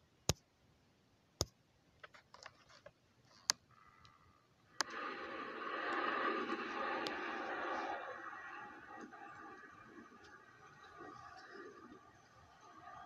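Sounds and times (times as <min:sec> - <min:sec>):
rushing noise from phone: 0:04.8 - 0:13.0.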